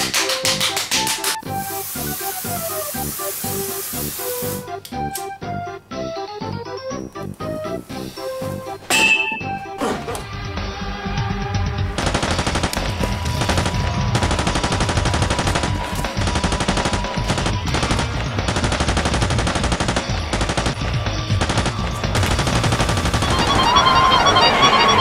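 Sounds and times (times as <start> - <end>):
music: 0.0 - 25.0
automatic rifle fire: 12.0 - 20.8.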